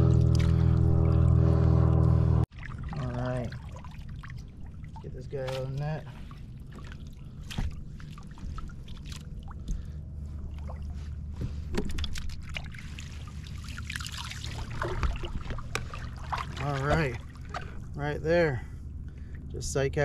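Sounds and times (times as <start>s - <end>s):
low steady rumble: 0.0s - 20.0s
water splashing and dripping: 2.5s - 9.9s, 11.8s - 17.8s.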